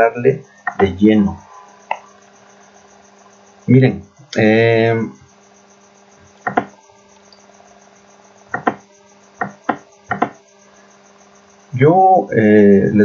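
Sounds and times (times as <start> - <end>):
low electrical hum: 0.0 - 13.0
computer mouse clicking: 6.4 - 7.4, 8.6 - 8.8, 9.4 - 10.4.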